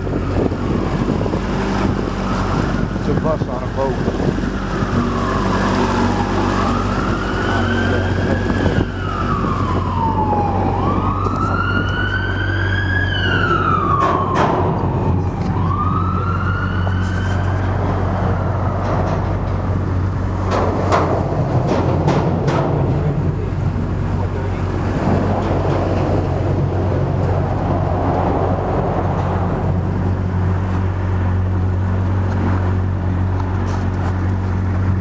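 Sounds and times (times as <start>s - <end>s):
emergency siren wailing: 0.0s - 20.4s
boat engine drone: 0.0s - 35.0s.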